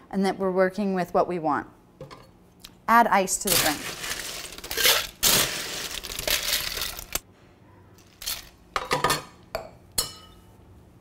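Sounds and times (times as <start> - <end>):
ice rattling in metal tin: 3.5 - 7.2.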